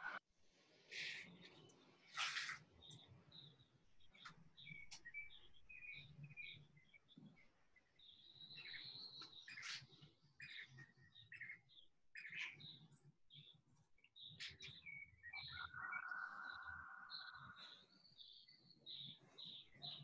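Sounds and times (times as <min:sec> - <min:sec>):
bird chirps: 0:01.0 - 0:20.0.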